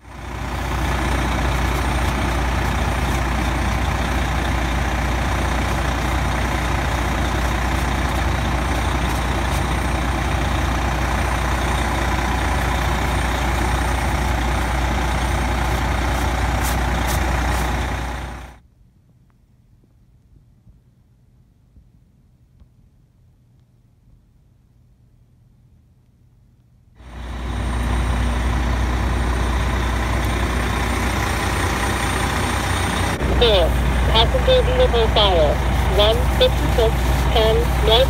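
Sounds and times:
heavy engine running: 0.0s - 18.6s, 27.0s - 38.0s.

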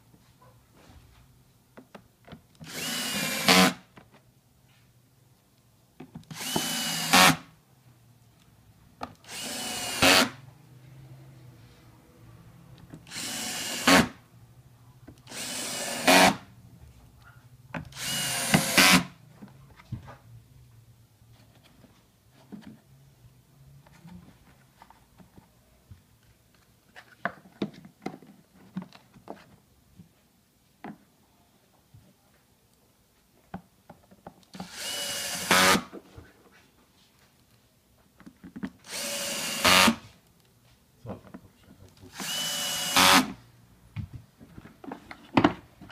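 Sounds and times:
cordless drill driving screws: 2.6s - 3.8s, 6.3s - 7.4s, 9.2s - 10.4s, 13.0s - 14.2s, 15.3s - 16.4s, 17.9s - 19.1s, 34.5s - 35.9s, 38.8s - 40.0s, 42.1s - 43.4s.

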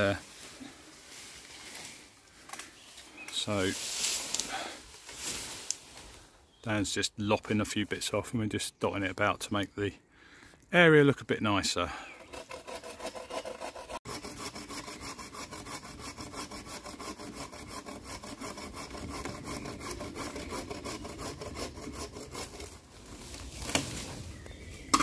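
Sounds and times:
hand saw cutting branch: 12.1s - 24.0s.

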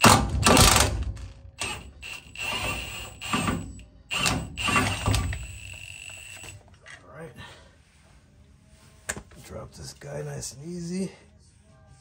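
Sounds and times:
impact wrench whining: 0.0s - 6.7s.

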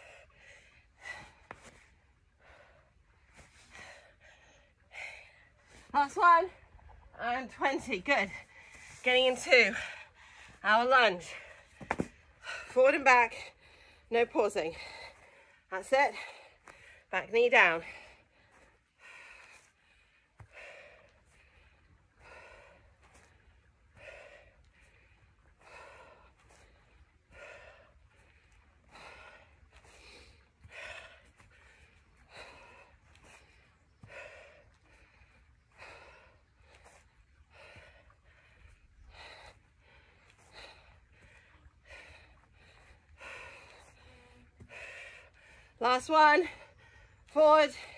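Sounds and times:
woman breathing hard: 0.0s - 5.8s, 14.7s - 17.1s, 17.8s - 45.8s.

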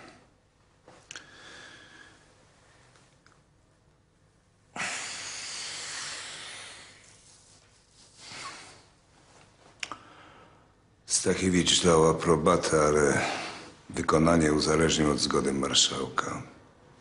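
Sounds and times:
person breathing: 1.1s - 2.9s, 4.8s - 9.0s, 9.9s - 10.8s.

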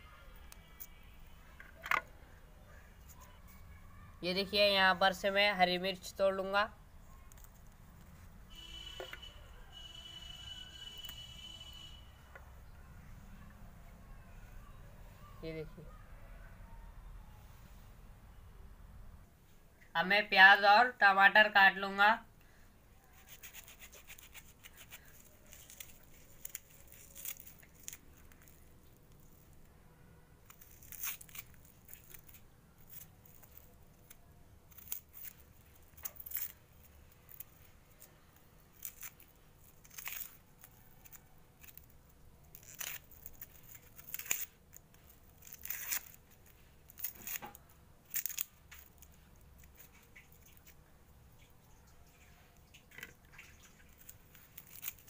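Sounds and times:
onion skin scratching and tearing: 23.0s - 29.7s, 30.4s - 51.5s, 52.6s - 55.0s.

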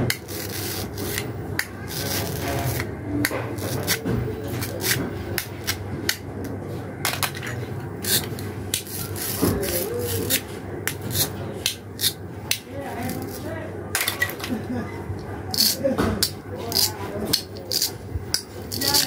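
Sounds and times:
plastic pieces rubbing: 0.1s - 5.8s, 15.5s - 19.0s
plastic toy pieces clicking: 15.5s - 19.0s.

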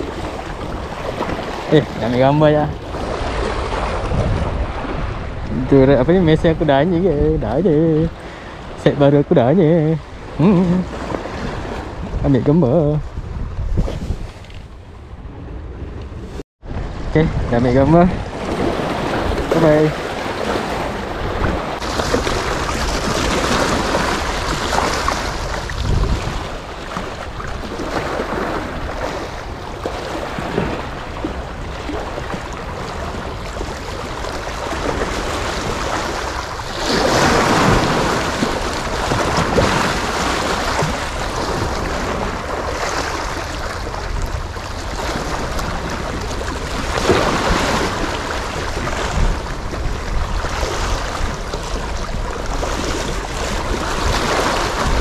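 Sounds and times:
sea waves splashing: 0.0s - 55.0s
wind noise on microphone: 0.0s - 55.0s.

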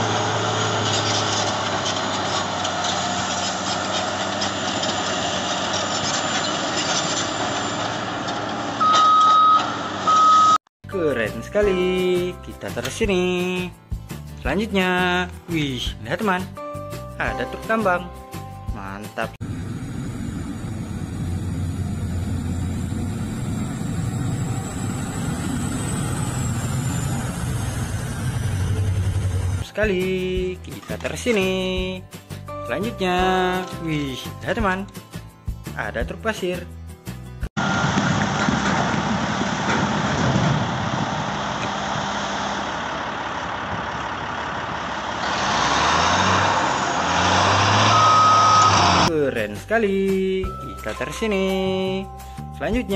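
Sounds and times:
truck diesel engine droning: 0.0s - 10.6s, 19.4s - 29.7s, 37.6s - 49.1s.

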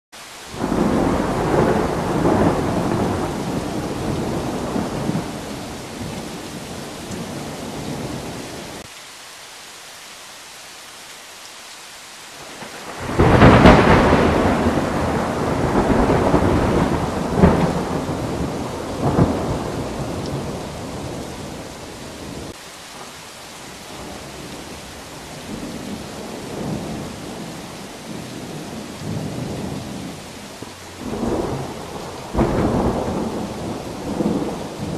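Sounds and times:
steady rain: 0.1s - 34.9s
thunder rumbling: 0.5s - 8.9s, 12.6s - 22.6s, 23.8s - 34.9s
thunder clap: 0.6s - 8.3s, 12.8s - 21.6s, 30.9s - 34.9s.

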